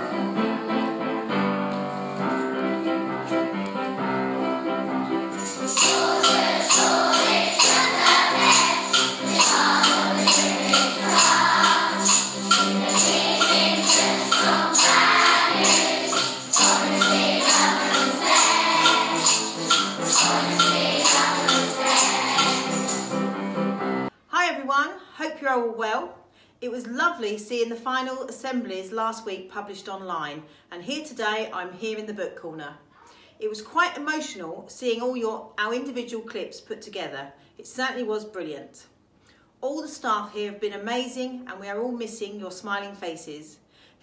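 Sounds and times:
upbeat intro music: 2.8 - 24.1
steady percussion beat: 5.3 - 23.6.

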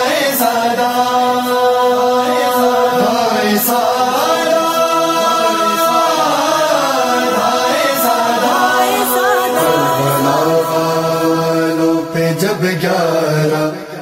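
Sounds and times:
melodic vocal chanting: 0.0 - 14.0
steady held drone: 1.4 - 12.8.

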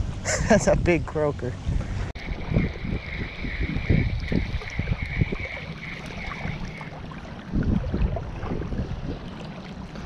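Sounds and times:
wind buffeting microphone: 0.0 - 10.0
faint pulsing high tone: 2.2 - 8.2.

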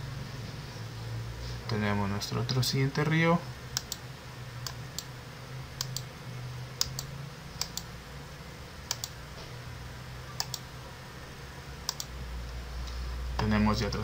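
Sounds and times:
low steady hum: 0.0 - 14.0
computer mouse clicking: 3.8 - 4.0, 5.8 - 6.1, 6.8 - 7.9, 8.9 - 9.2, 10.4 - 10.7, 11.9 - 12.1.

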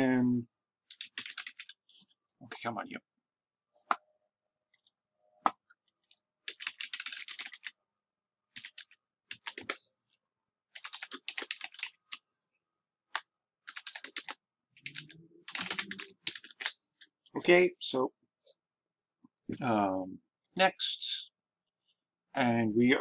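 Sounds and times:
keyboard typing: 0.9 - 1.8, 4.7 - 7.8, 8.5 - 9.8, 10.7 - 12.2, 13.1 - 17.1.

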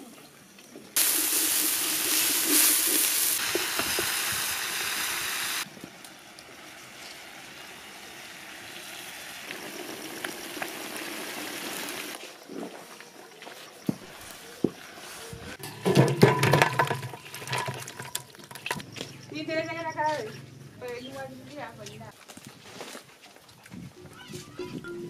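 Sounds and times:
food sizzling in hot pot: 1.0 - 12.2
pot boiling hiss: 1.0 - 12.5.

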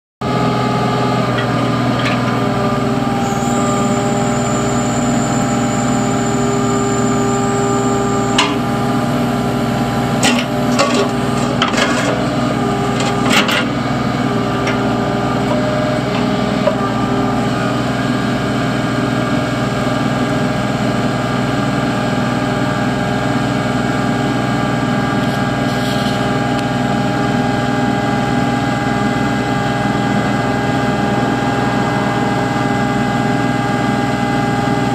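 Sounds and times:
diesel engine running: 0.2 - 34.9
thin high whine: 3.0 - 9.0.

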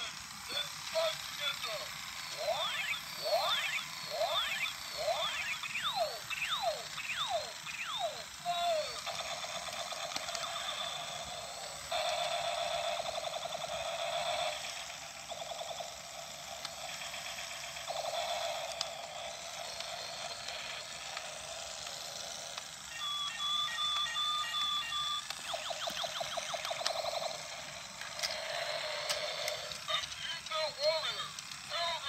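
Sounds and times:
toy robot falling zaps: 0.0 - 22.9, 24.6 - 30.2
steady electronic buzzing: 0.0 - 30.0.

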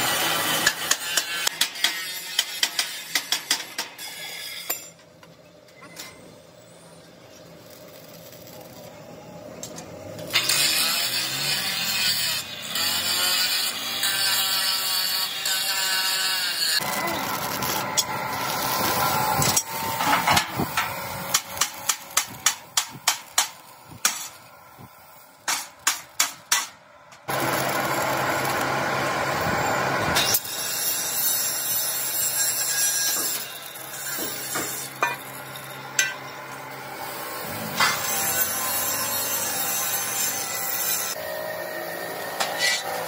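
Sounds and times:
hammer strikes on steel: 0.4 - 5.0, 19.5 - 24.4, 25.4 - 26.8, 34.1 - 36.4
arc welding crackling hiss: 7.4 - 9.3, 10.3 - 26.6.

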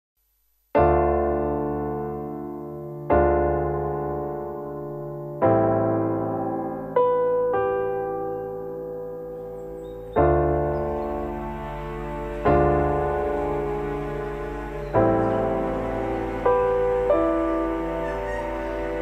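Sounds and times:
electric piano chords: 0.8 - 19.0.

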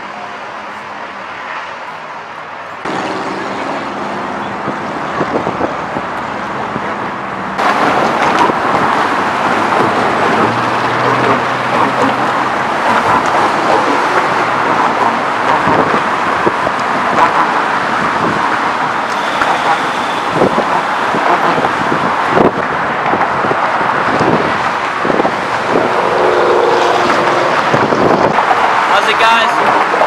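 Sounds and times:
traffic on bridge: 0.0 - 30.0.

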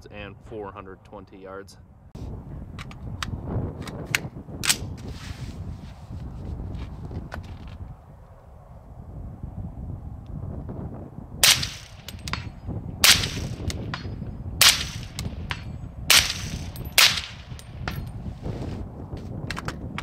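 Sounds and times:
wind buffeting microphone: 0.0 - 20.0
suppressed rifle shots: 11.4 - 18.0.

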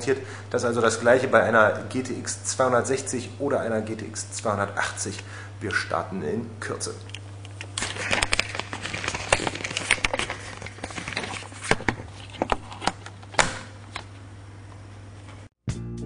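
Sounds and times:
steady low hum: 0.0 - 15.5
rustling: 7.7 - 12.9.

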